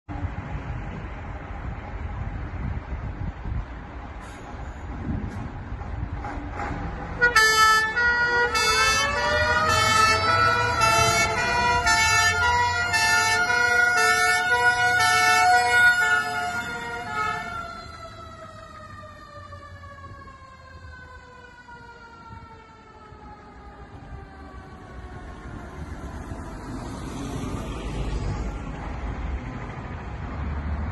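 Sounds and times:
fire engine rumbling: 0:00.1 - 0:30.9
two-tone fire engine horns: 0:07.1 - 0:18.6
rising and falling siren tone: 0:07.4 - 0:28.8.

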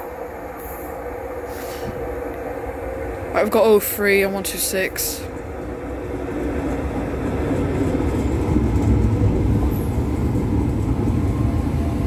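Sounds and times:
train rumbling on rails: 0:00.0 - 0:12.0.

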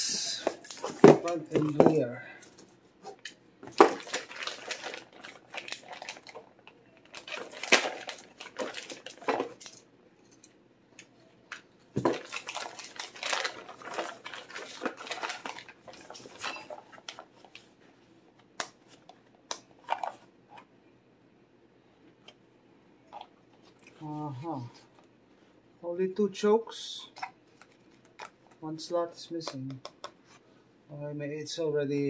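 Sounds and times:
plastic bags crinkling: 0:03.6 - 0:09.8, 0:11.9 - 0:17.7.

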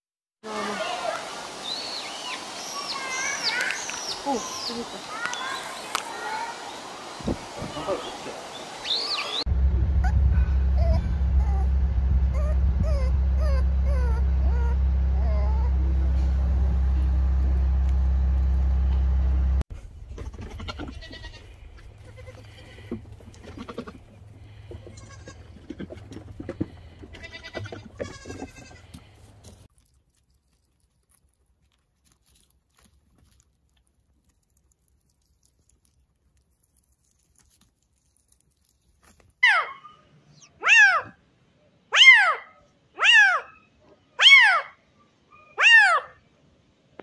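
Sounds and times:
loud steady low hum: 0:09.5 - 0:19.6
puppy whimpering: 0:10.0 - 0:11.7, 0:12.3 - 0:15.8
rustling: 0:19.7 - 0:39.4
goats bleating: 0:20.2 - 0:26.0, 0:26.7 - 0:29.1.

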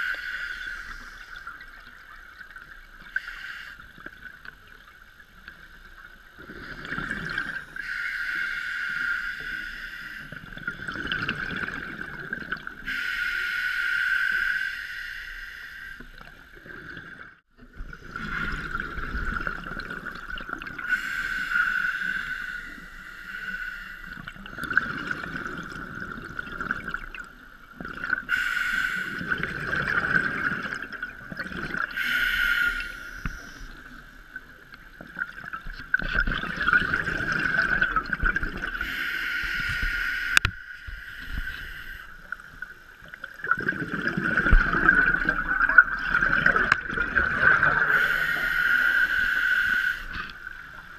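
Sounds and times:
regulator inhale hiss: 0:00.0 - 0:01.6, 0:03.1 - 0:03.9, 0:07.7 - 0:10.4, 0:12.8 - 0:16.1, 0:20.8 - 0:24.4, 0:28.3 - 0:29.4, 0:31.9 - 0:34.0, 0:38.8 - 0:42.4, 0:47.7 - 0:50.5
exhaled bubbles rumbling: 0:03.9 - 0:07.8, 0:10.3 - 0:12.9, 0:16.1 - 0:20.9, 0:24.1 - 0:28.3, 0:29.1 - 0:32.0, 0:33.3 - 0:38.9, 0:39.5 - 0:48.5.

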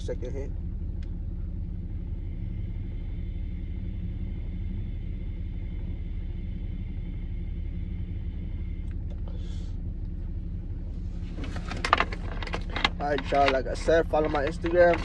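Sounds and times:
truck engine rumble: 0:00.0 - 0:15.0.

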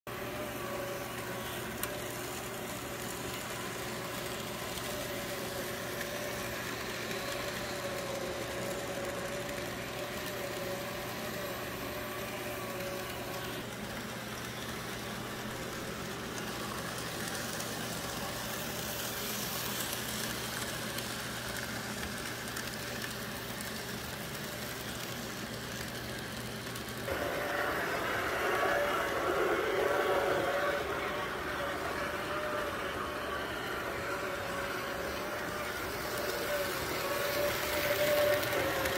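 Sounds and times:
steady mechanical hum: 0:00.1 - 0:38.9
wavering mid-pitched whine: 0:27.1 - 0:38.9.

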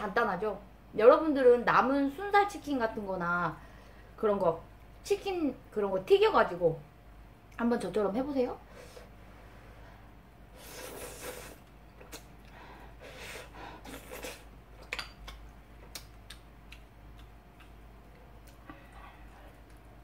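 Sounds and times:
slurping noodles: 0:10.6 - 0:11.7.

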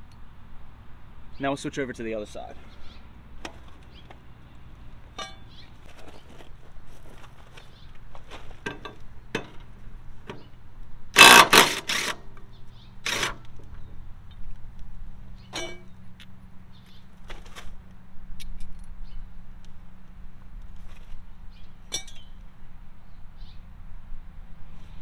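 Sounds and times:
impact driver hammering: 0:11.2 - 0:12.2
metal clicks of tools handled: 0:18.4 - 0:19.0.

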